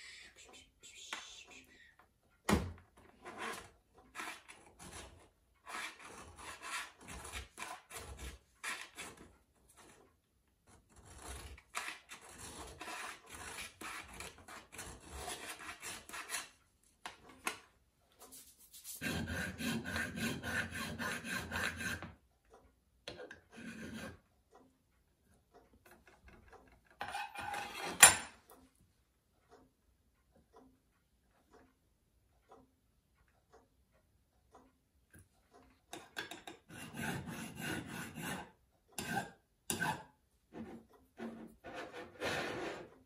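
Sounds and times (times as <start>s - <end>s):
file rasping on metal: 3.2s - 10.0s, 10.7s - 16.6s, 18.9s - 22.2s, 23.4s - 24.2s, 27.0s - 28.3s, 36.2s - 42.9s.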